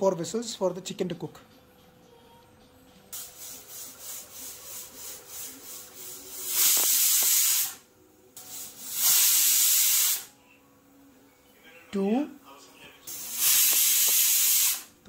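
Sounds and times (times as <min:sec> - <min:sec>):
pressure cooker pulsing hiss: 0:03.2 - 0:10.3, 0:13.1 - 0:15.0.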